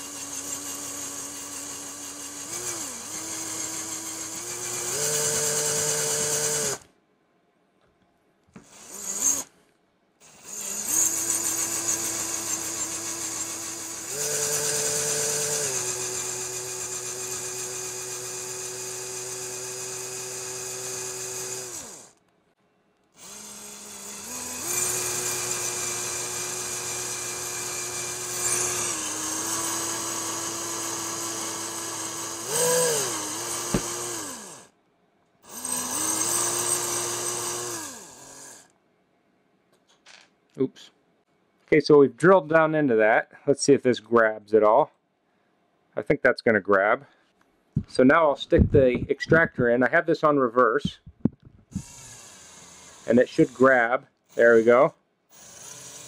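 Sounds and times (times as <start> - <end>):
electric drill whining: 0.0 - 6.9, 8.6 - 9.6, 10.2 - 22.2, 23.2 - 34.7, 35.4 - 38.7, 50.8 - 56.0.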